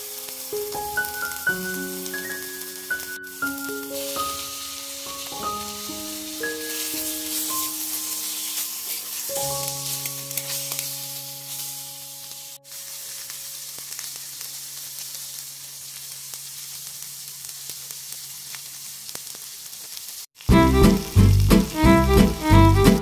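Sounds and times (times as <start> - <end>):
eggs sizzling in a pan: 0.0 - 23.0.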